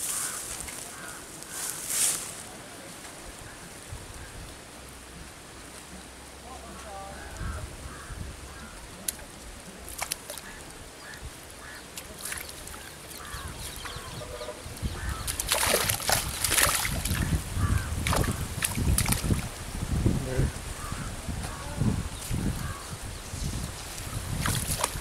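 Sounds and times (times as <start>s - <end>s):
net splashing through water: 9.1s - 10.7s, 11.9s - 13.8s, 15.2s - 19.5s, 23.9s - 25.0s.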